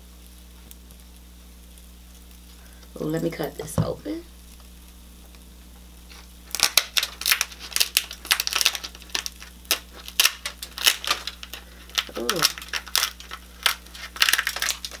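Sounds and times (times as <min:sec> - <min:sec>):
shears cutting lobster shell: 0:06.6 - 0:15.0.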